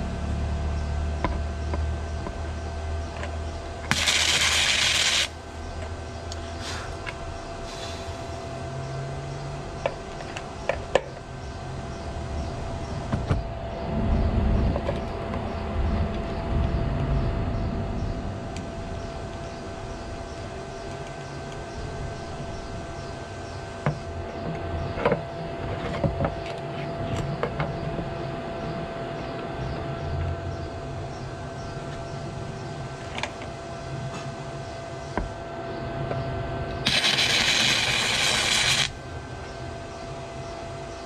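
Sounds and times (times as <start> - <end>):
steady hum: 0.0 - 41.0
arc welder crackling hiss: 3.9 - 5.4, 36.8 - 39.0.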